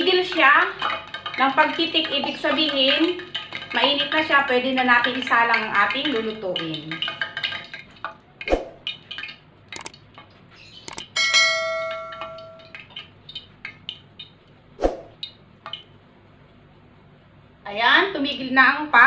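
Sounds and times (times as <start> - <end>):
water popping in hot oil: 0.0 - 16.0
bell-like chime: 11.2 - 12.7.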